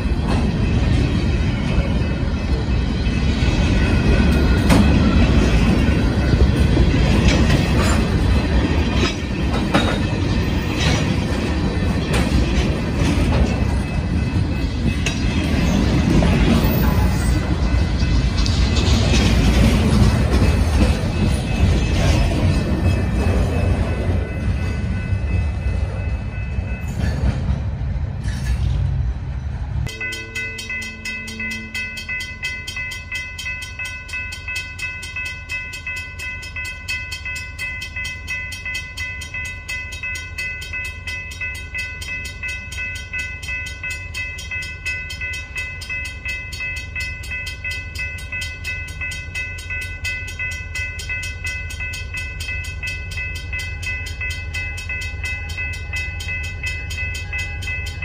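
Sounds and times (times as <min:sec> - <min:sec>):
railroad crossing bell ringing: 0:00.0 - 0:27.9, 0:29.8 - 0:58.0
freight cars rumbling on track: 0:00.0 - 0:30.0
approaching train rumble: 0:00.0 - 0:58.0.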